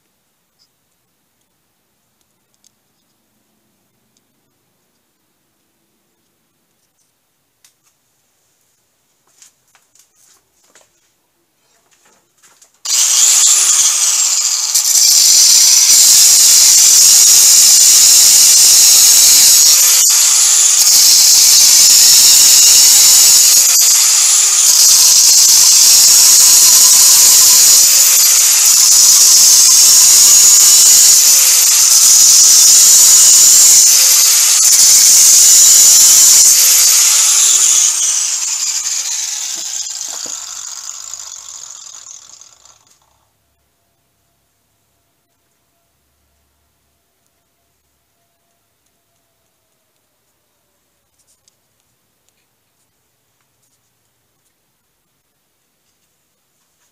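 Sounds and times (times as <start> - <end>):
angle grinder cutting rod: 12.9 - 43.2.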